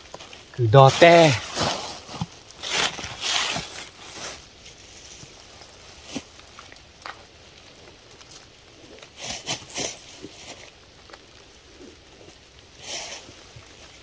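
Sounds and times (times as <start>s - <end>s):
faint rustling and scraping: 0.0s - 14.0s.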